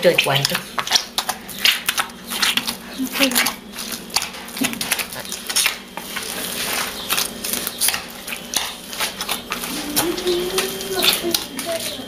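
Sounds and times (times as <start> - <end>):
hand kneading wet dough: 0.0 - 12.0.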